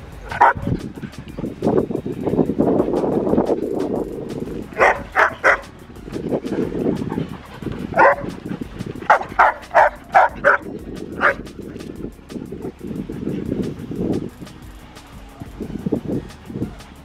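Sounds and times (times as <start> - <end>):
dogs barking: 0.0 - 2.0, 2.8 - 14.4
low rumbling noise: 0.0 - 17.0.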